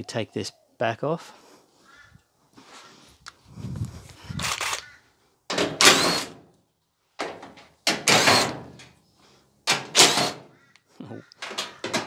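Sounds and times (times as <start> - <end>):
impact driver rattling hammering: 5.5 - 6.4, 7.2 - 8.9, 9.7 - 10.5, 11.4 - 12.0.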